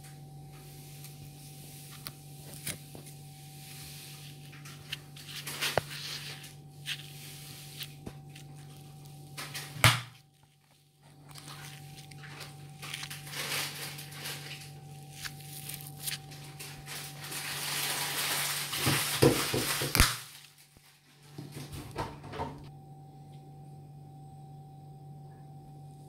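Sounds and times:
coconut husk crackling and tearing: 0:01.0 - 0:20.9.

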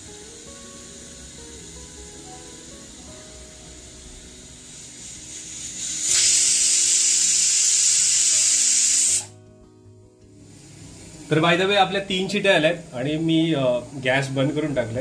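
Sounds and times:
pressure cooker whistling: 0:00.0 - 0:09.4.

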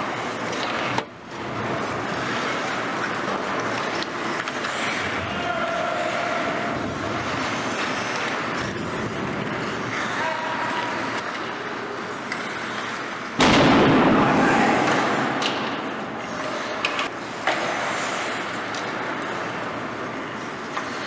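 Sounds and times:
hockey stick clacks: 0:01.8 - 0:05.1, 0:12.2 - 0:13.0, 0:16.3 - 0:19.5, 0:20.5 - 0:21.0
loud bang echoing: 0:13.4 - 0:15.9.

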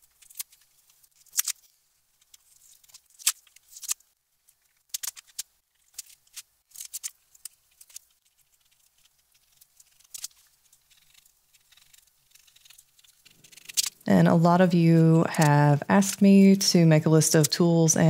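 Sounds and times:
spatula scraping paper: 0:07.7 - 0:14.0.

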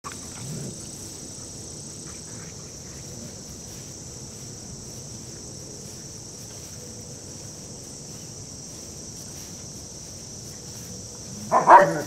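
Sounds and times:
high-pitched insect drone: 0:00.1 - 0:12.0.

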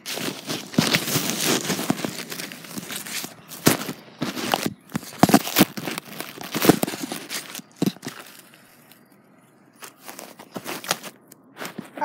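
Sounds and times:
phone handling rustles and knocks: 0:00.1 - 0:08.6.

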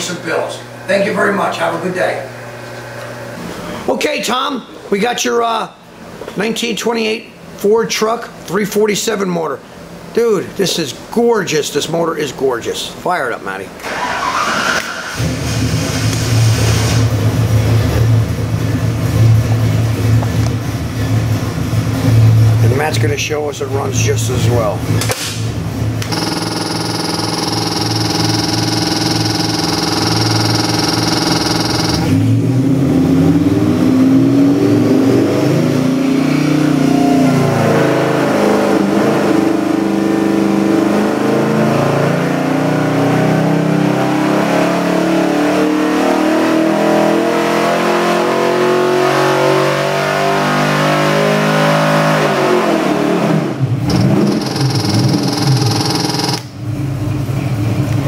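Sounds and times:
engine revving on dynamometer: 0:26.0 - 0:56.5.

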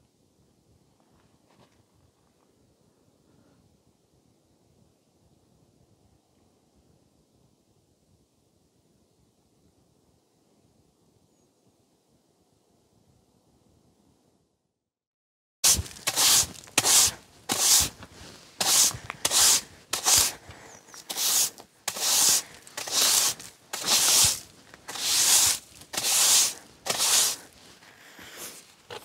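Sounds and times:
snow scraping on wooden deck: 0:15.6 - 0:29.0.

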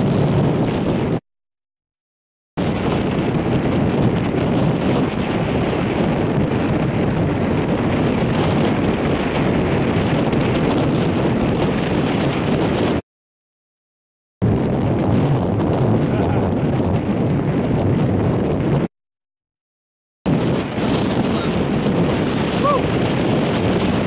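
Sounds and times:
wind buffeting microphone: 0:00.0 - 0:01.2, 0:02.6 - 0:13.0, 0:14.4 - 0:18.9, 0:20.3 - 0:24.0
ocean surf breaking: 0:02.6 - 0:13.0, 0:20.3 - 0:24.0.

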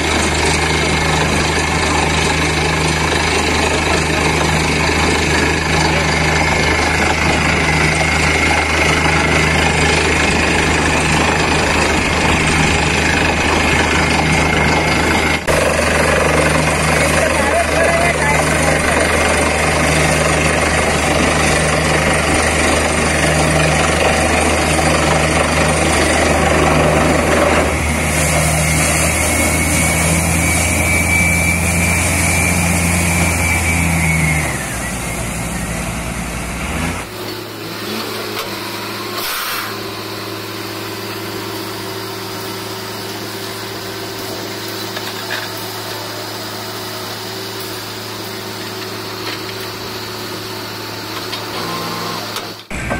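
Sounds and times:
drilling rig and compressor drone: 0:00.0 - 0:52.9
engine hum: 0:00.0 - 0:52.9.

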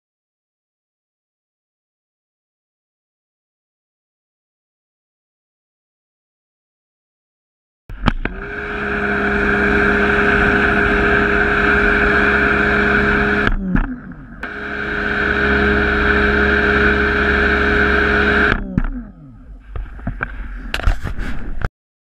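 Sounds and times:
clicks: 0:07.9 - 0:08.5, 0:10.6 - 0:21.1
pressure washer motor hum: 0:07.9 - 0:19.7.

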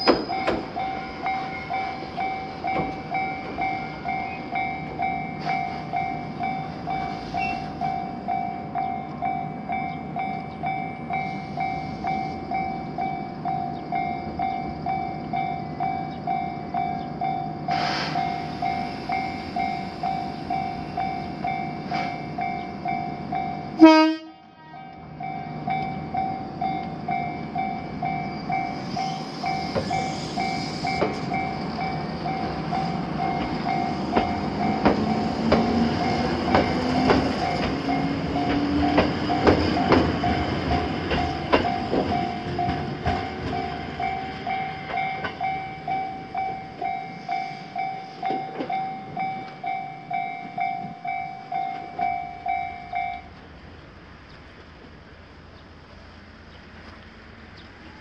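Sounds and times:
train wheels clacking over rail joints: 0:00.0 - 0:04.2, 0:28.8 - 0:45.6
level-crossing warning bell: 0:00.0 - 0:53.8
train horn blast: 0:23.8 - 0:25.1
train motor whine: 0:24.9 - 0:52.6.

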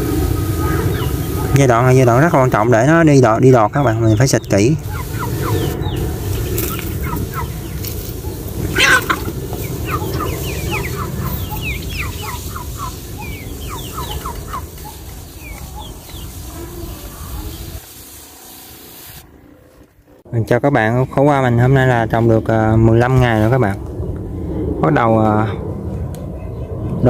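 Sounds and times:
chickens clucking: 0:00.4 - 0:02.8, 0:03.5 - 0:18.2
low rumble: 0:21.6 - 0:27.0.

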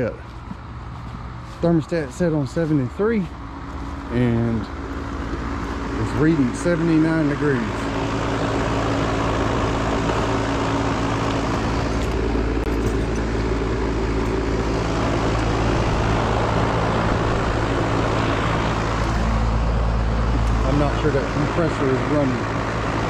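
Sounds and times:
air conditioner fan humming: 0:00.0 - 0:23.0.

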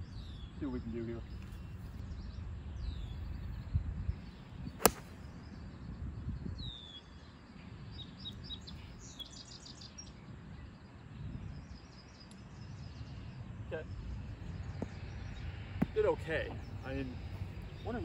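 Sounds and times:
birds calling: 0:00.0 - 0:05.9
wind rumble on microphone: 0:00.0 - 0:18.0
golf club striking ball: 0:04.8 - 0:05.2.

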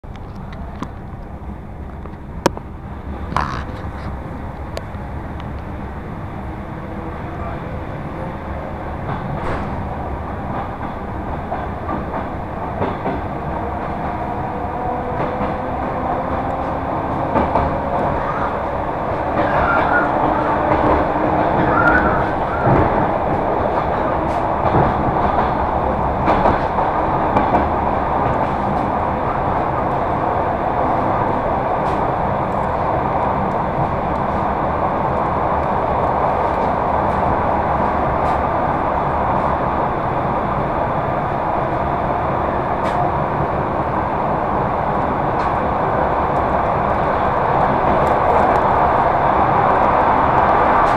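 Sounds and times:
train wheel and rail rumble: 0:00.0 - 0:50.9
rail clacks: 0:00.1 - 0:50.9.

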